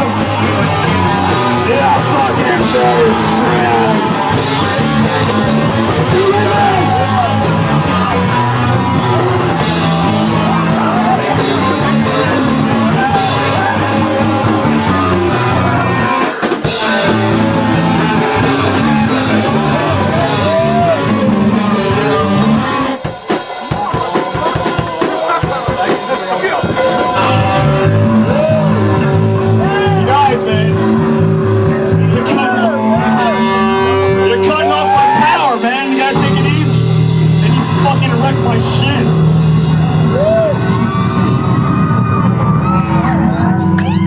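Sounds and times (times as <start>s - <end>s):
person singing: 0.0s - 22.6s, 26.6s - 31.0s
punk rock band playing: 0.0s - 44.0s.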